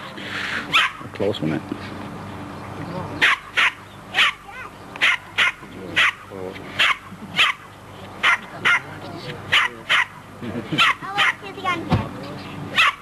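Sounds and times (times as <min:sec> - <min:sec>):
small dog yapping: 0:00.7 - 0:01.0, 0:03.2 - 0:06.2, 0:06.8 - 0:08.9, 0:09.5 - 0:10.2, 0:10.8 - 0:11.4, 0:12.7 - 0:13.0.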